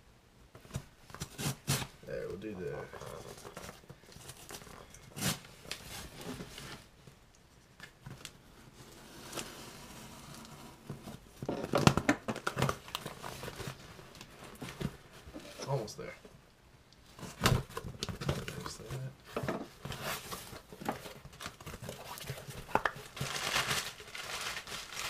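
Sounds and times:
packaging crinkling and rustling: 0.6s - 9.6s, 10.2s - 16.0s, 17.0s - 25.0s
packing tape tearing: 1.1s - 1.9s, 3.2s - 6.0s, 21.4s - 25.0s.

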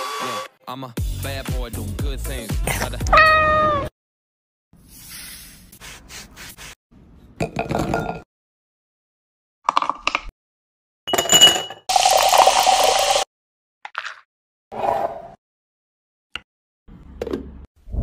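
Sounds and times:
ice clinking into glass: 11.1s - 13.1s
soda fizzing over ice: 11.9s - 13.2s.

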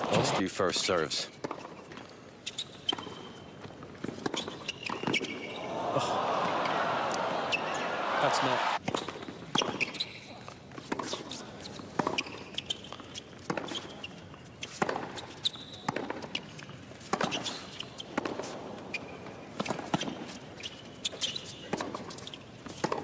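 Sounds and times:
shoes squeaking on court: 1.3s - 5.7s, 8.8s - 23.0s
tennis ball bouncing: 2.8s - 5.7s, 10.8s - 13.9s, 14.6s - 20.8s, 21.7s - 23.0s.

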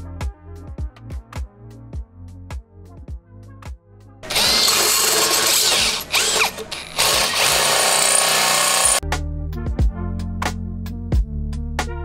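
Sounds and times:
power tool rasping on steel: 4.2s - 9.0s.

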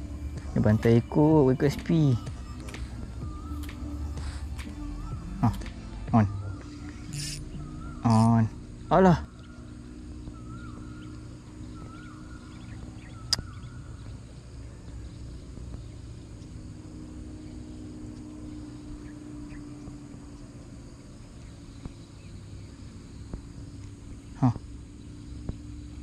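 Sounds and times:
steady low hum: 0.0s - 26.0s
faint ticks: 1.8s - 6.0s, 12.6s - 17.2s, 17.8s - 24.7s.

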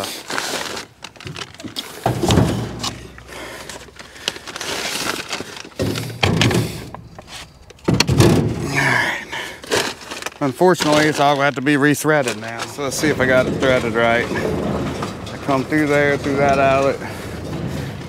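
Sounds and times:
bag rustling: 0.0s - 18.0s
twine balls knocking dull thunks: 1.0s - 4.6s, 5.3s - 8.8s.

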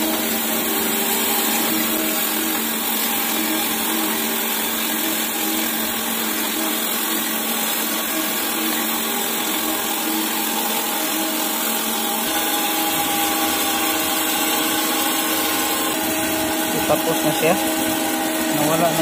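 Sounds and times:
coolant hiss: 0.0s - 19.0s
surface grinder running: 0.0s - 19.0s.

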